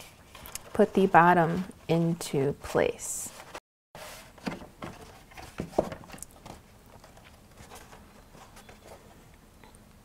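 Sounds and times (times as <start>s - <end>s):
paper handling noise: 3.3s - 9.2s.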